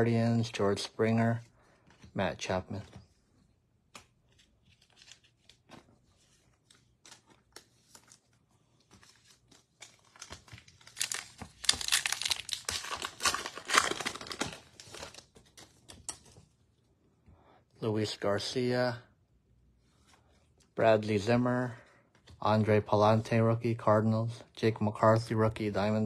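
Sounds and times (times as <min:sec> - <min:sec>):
card pack wrapper crinkling: 0:06.6 - 0:16.3.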